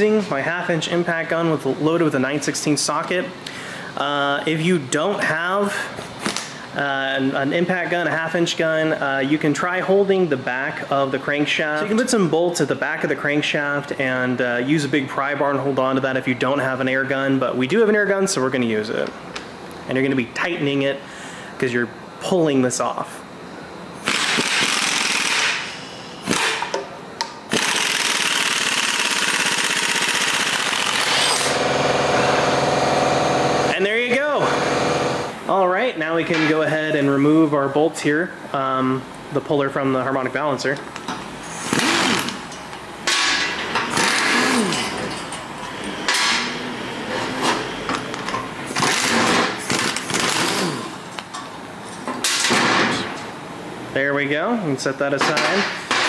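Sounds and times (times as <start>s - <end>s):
pneumatic impact wrench hammering: 24.0s - 26.9s, 27.5s - 33.7s, 34.4s - 35.3s, 41.5s - 47.6s, 48.7s - 51.2s, 52.2s - 53.2s.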